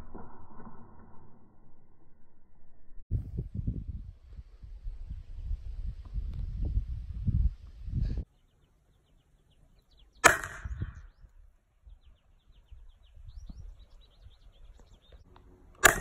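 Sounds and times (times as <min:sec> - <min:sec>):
rifle shot with ringing tail: 0:10.2 - 0:11.0.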